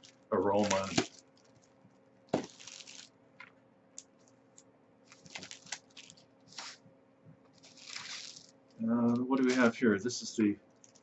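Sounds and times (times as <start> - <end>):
plastic bag crinkling: 0.0 - 3.1, 5.0 - 6.8, 7.5 - 9.8, 10.8 - 11.0
faint steady hum: 0.0 - 11.0.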